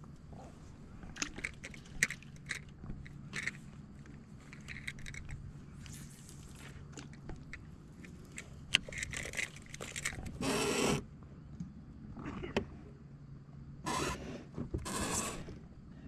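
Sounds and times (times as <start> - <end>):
faint low hum: 0.0 - 16.0
rod and reel handling clicks: 1.1 - 10.4.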